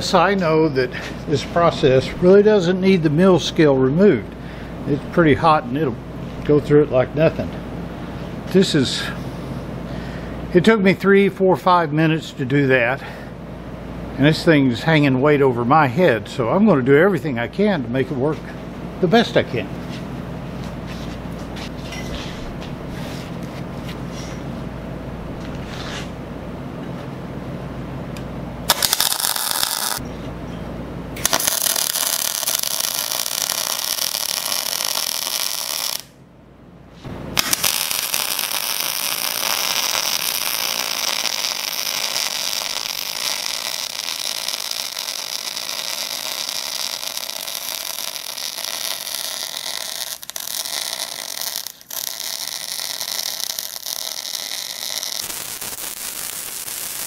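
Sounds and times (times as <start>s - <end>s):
welding arc hissing: 28.7s - 30.0s, 31.2s - 36.1s, 37.4s - 57.0s.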